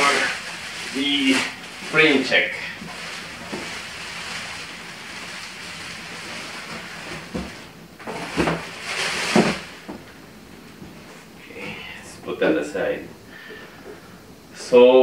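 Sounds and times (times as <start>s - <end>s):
plastic wrapping rustling: 0.0s - 11.3s.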